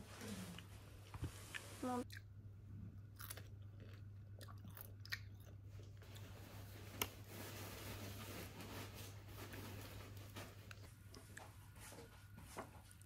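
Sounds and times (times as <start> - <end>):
low steady hum: 0.0 - 13.0
chewing and biting: 3.0 - 6.3.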